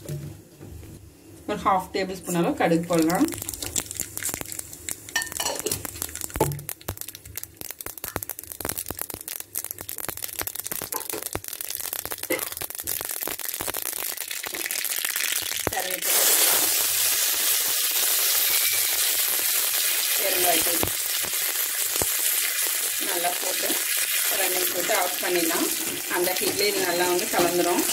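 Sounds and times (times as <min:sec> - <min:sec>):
loud sizzle in hot oil: 0:02.2 - 0:27.9
mustard seeds popping in oil: 0:02.6 - 0:27.9.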